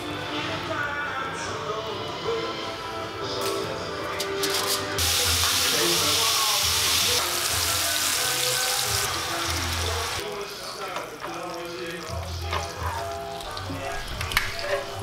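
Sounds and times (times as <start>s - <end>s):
food sizzling in hot oil: 5.0s - 13.8s.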